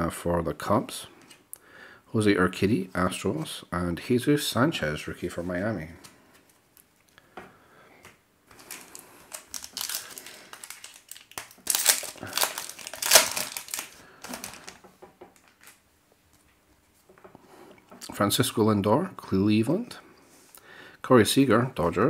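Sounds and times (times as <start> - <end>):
plastic wrapper crinkling: 8.5 - 15.8.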